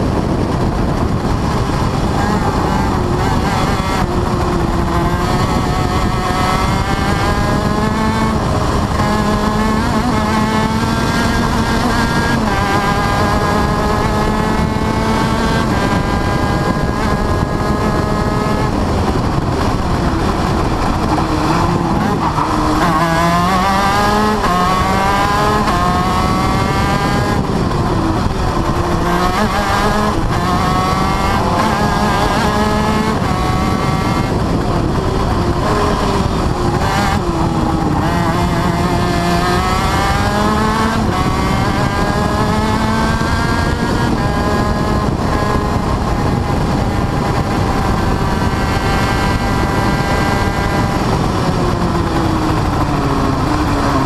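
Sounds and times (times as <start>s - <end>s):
two-stroke kart engine revving: 0.0s - 54.0s.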